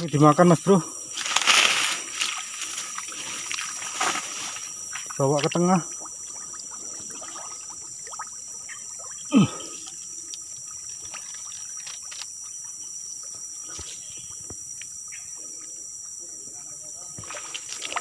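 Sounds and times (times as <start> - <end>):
water trickling and splashing: 1.2 - 15.0, 17.1 - 18.0
small ticks: 9.8 - 12.8, 13.7 - 15.2.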